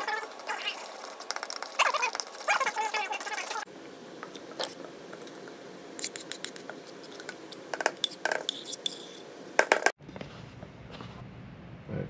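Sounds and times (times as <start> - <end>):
metal spoon scraping ceramic bowl: 8.0 - 9.2.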